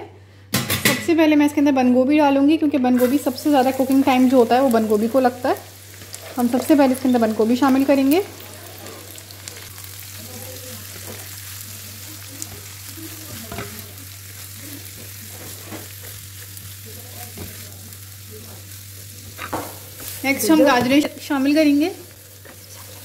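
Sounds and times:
cabbage sizzling in oil: 3.0s - 23.0s
spatula scraping a pan: 22.4s - 23.0s.

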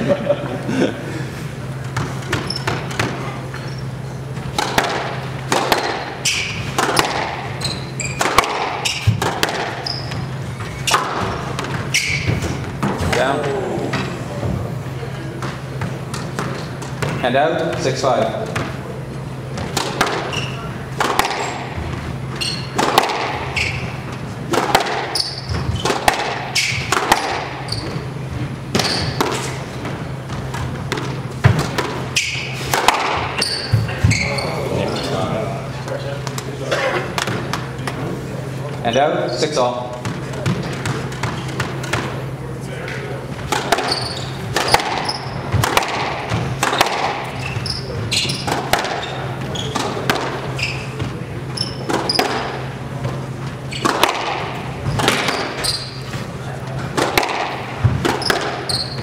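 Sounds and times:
steady low hum: 0.0s - 58.7s
sneaker squeaks: 1.6s - 13.2s, 14.0s - 42.4s, 43.0s - 59.0s
squash ball hits: 4.4s - 13.5s, 19.5s - 28.1s, 28.7s - 34.3s, 43.4s - 56.2s, 56.8s - 59.0s.

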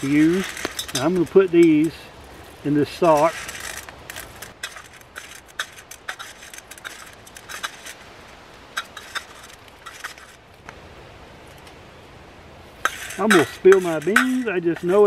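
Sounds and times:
coffee beans rattling in metal bowl: 0.0s - 2.0s, 2.9s - 8.0s, 8.8s - 10.4s, 12.8s - 15.0s
metal spoon scraping bowl: 0.0s - 2.0s, 3.0s - 8.0s, 8.8s - 10.4s, 12.8s - 15.0s.

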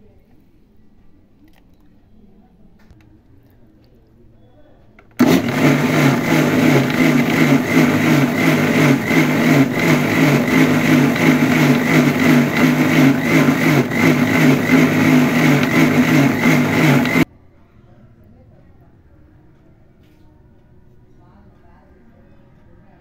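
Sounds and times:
electric mixer-grinder running: 5.2s - 17.2s.

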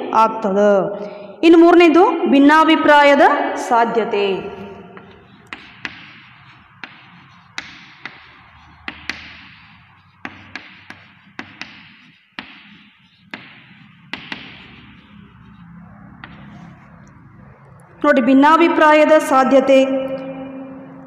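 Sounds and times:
chalk tapping and scratching on blackboard: 4.2s - 18.1s.

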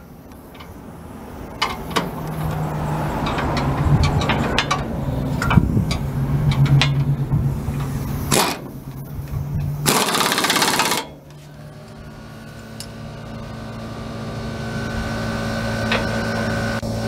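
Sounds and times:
steady humming drone: 0.0s - 17.0s
sharp metallic clicks: 1.5s - 11.4s
air impact wrench: 7.6s - 11.3s.

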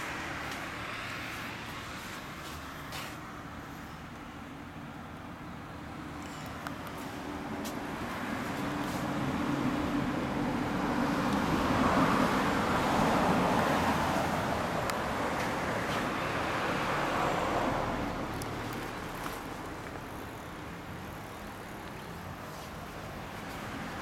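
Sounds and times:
car passing: 7.9s - 24.0s.

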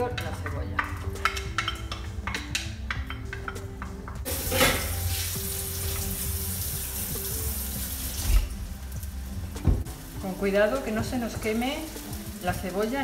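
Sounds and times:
loud sizzle of frying: 4.2s - 13.0s.

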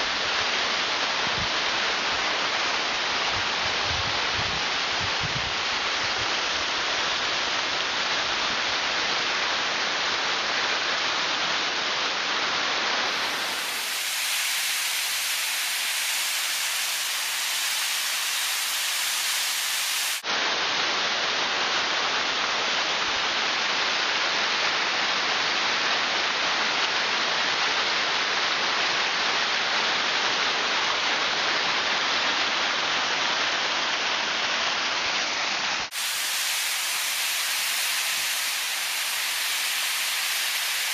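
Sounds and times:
waterfall rushing: 12.7s - 20.2s, 35.8s - 40.9s.

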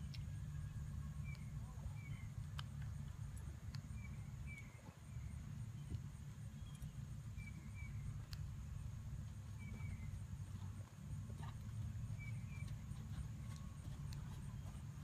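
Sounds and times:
steady low rumble: 0.0s - 15.0s
hoofbeats on sand: 9.3s - 15.0s.

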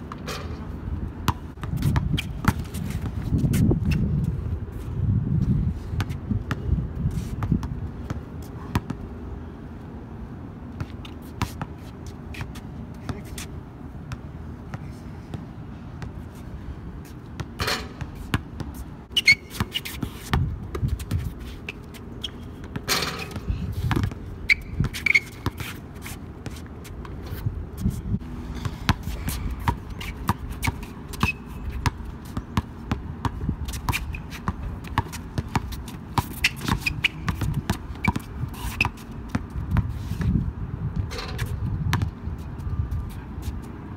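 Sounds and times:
basketball bouncing on hard court: 1.3s - 2.8s, 7.4s - 9.0s, 22.2s - 25.7s, 28.6s - 39.9s, 41.9s - 42.1s
shoe squeaks: 17.6s - 32.7s, 33.3s - 40.4s.

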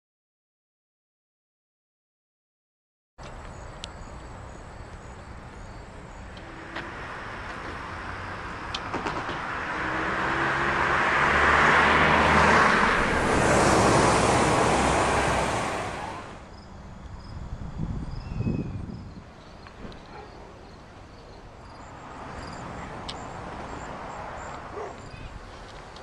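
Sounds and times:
car driving past: 6.4s - 16.5s.

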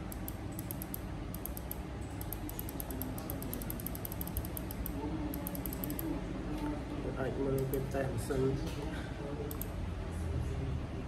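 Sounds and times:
mouse scroll wheel clicking: 0.0s - 6.1s.

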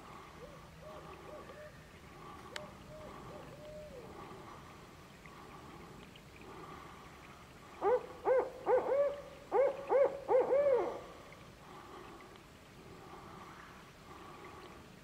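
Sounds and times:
owl hooting: 2.6s - 4.2s, 7.8s - 11.1s.

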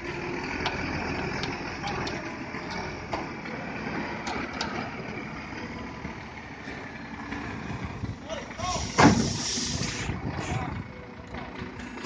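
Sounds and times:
diesel truck engine idling: 0.0s - 12.0s.

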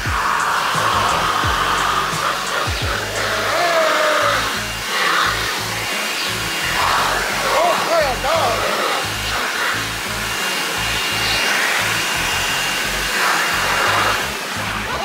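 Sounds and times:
lips flapping: 0.0s - 3.8s
leaf blower blasting air: 0.0s - 15.0s.

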